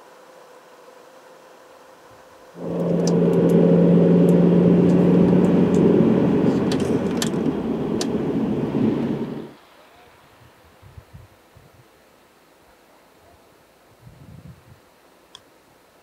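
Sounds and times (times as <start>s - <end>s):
car engine and tyre noise: 2.6s - 9.6s.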